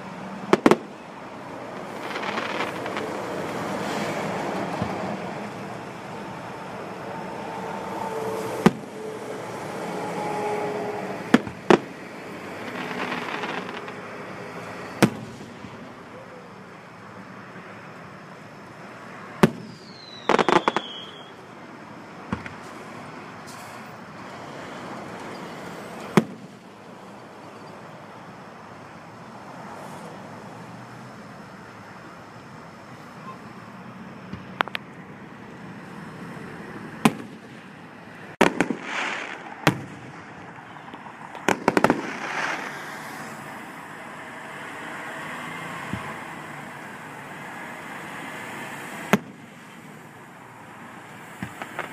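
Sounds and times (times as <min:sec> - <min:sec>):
background noise: 0:00.0 - 0:51.9
crackling reports: 0:00.1 - 0:07.6, 0:11.1 - 0:16.1, 0:37.1 - 0:44.0, 0:51.2 - 0:51.9
fireworks booms: 0:00.4 - 0:01.0, 0:01.7 - 0:05.5, 0:08.5 - 0:09.0, 0:11.3 - 0:12.0, 0:12.6 - 0:14.1, 0:15.0 - 0:15.9, 0:19.4 - 0:21.3, 0:26.1 - 0:26.6, 0:37.0 - 0:37.7, 0:38.4 - 0:43.0, 0:49.1 - 0:49.5, 0:51.3 - 0:51.9
falling whistle: 0:19.7 - 0:21.4.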